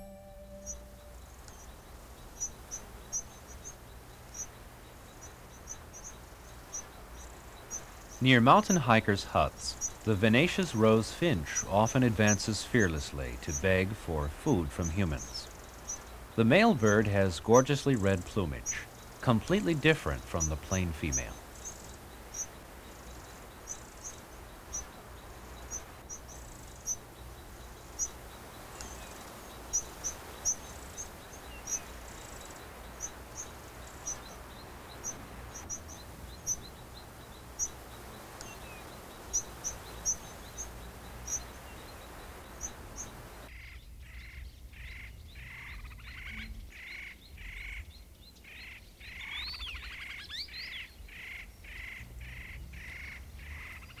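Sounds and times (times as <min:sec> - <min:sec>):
rising whistled notes: 0:00.0 - 0:01.2
bird repeating lower notes: 0:00.0 - 0:01.8, 0:07.7 - 0:25.0
finches chirping: 0:00.1 - 0:54.0.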